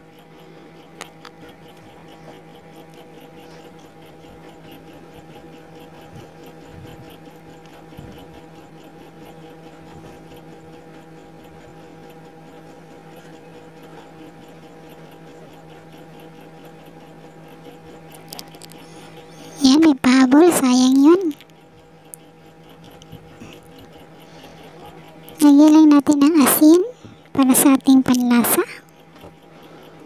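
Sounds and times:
steady hum: 18.1 - 21.5, 22.1 - 30.0.

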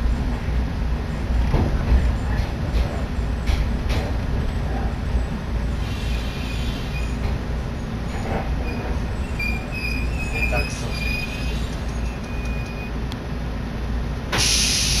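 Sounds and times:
train low rumble: 0.0 - 15.0
wheel squeals: 8.0 - 13.0
loud hiss: 14.3 - 15.0.

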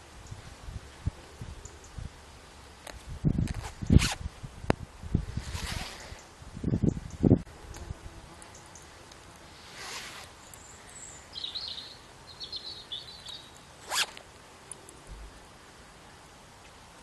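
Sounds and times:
zipper fiddling: 3.4 - 4.2, 5.4 - 6.1, 9.6 - 10.4, 13.8 - 14.2
zipper unzipping and zipping: 3.5 - 4.2, 5.4 - 6.1, 9.7 - 10.4, 13.8 - 14.2.

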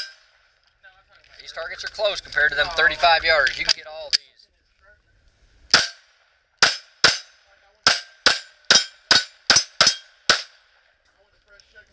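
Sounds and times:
pistol shots: 5.7 - 6.0, 6.6 - 10.8.

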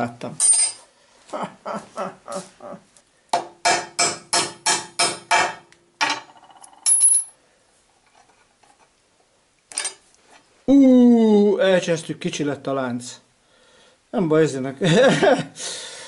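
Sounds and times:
high metallic clink: 0.4 - 0.8, 6.1 - 7.4
hammer striking metal punch: 3.4 - 6.2.

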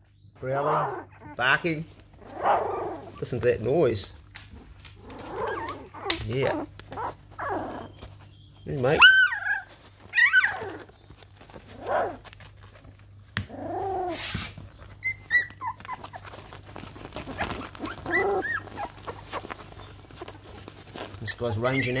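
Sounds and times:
puppies whimpering and squealing: 0.3 - 4.0, 4.6 - 22.0
puppies growling and barking: 0.4 - 22.0.

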